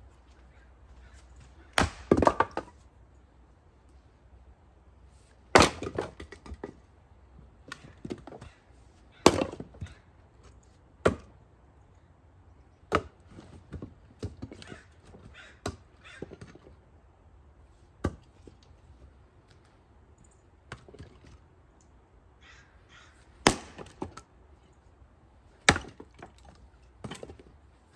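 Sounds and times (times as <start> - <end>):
firewood knocking together: 1.8 - 2.8.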